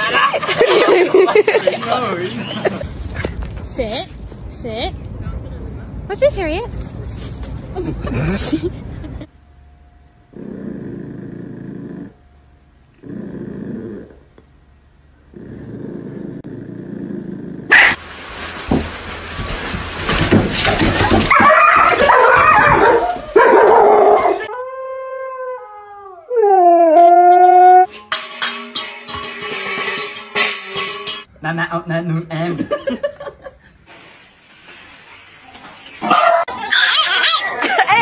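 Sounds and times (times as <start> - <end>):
dogs barking and yelping: 17.7 - 18.0, 20.8 - 24.5, 35.9 - 38.0
husky howling: 21.2 - 27.9.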